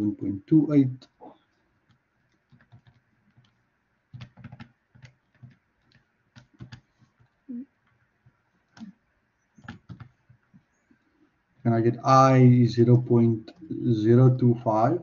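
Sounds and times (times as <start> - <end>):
calculator keys clicking: 2.3 - 3.6, 4.2 - 7.3, 9.6 - 10.4.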